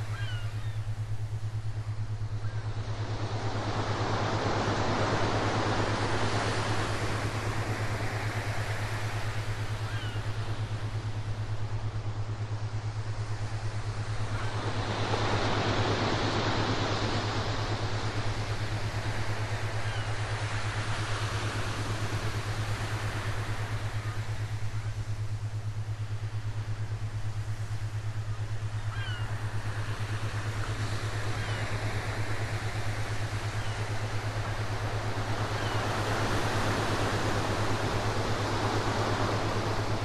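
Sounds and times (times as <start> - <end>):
constant low hum: 0.0 - 40.0
ocean surf washing: 26.8 - 40.0.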